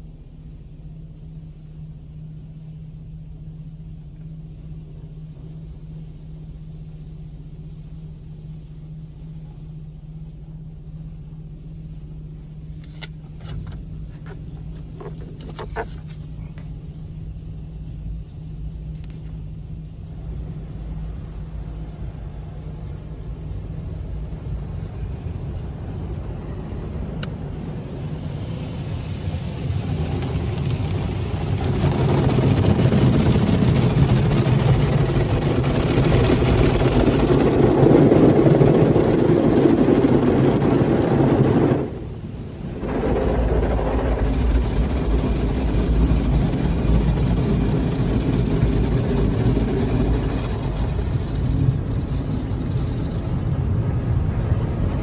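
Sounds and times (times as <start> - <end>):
low hum: 0.0 - 55.0
car wash water spray rushing: 12.0 - 16.6, 24.4 - 55.0.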